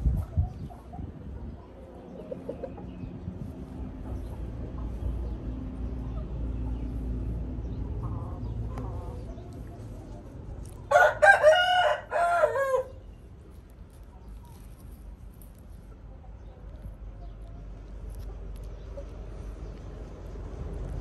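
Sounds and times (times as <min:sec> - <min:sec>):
rooster crowing: 0:10.9 - 0:13.0
low rumble: 0:13.0 - 0:21.0.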